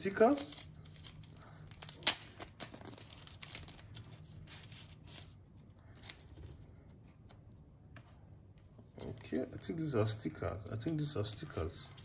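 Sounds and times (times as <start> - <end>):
paper packaging rustling: 0.0 - 6.6.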